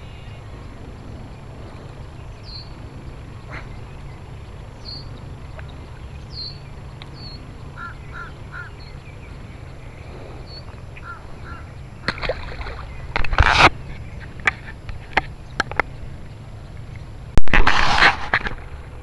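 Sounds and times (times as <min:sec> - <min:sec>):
bird calls: 0:00.0 - 0:17.2
small birds chirping: 0:00.0 - 0:17.4.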